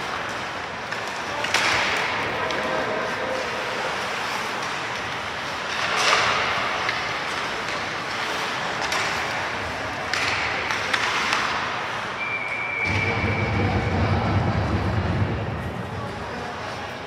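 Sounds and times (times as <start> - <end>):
sharp knocks of sticks and puck: 0.0 - 2.7, 4.4 - 12.0
rink and crowd noise: 0.0 - 17.0.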